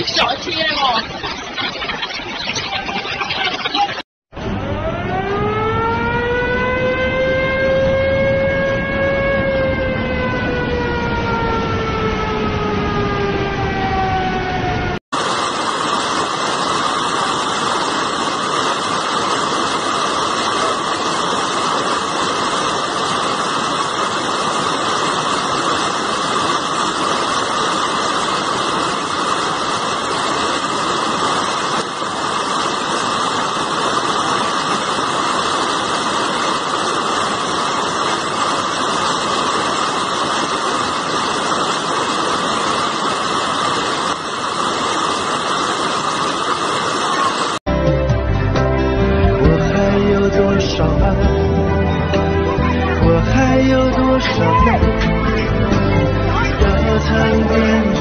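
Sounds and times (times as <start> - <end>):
floodwater rushing: 15.1 - 47.6.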